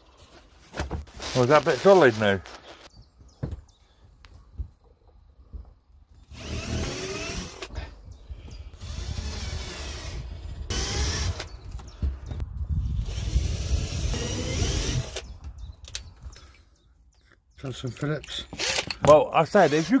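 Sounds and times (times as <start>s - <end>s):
power drill drilling into timber: 6.3s - 7.8s, 8.8s - 11.5s, 13.0s - 15.2s, 18.6s - 19.0s, 19.6s - 20.0s.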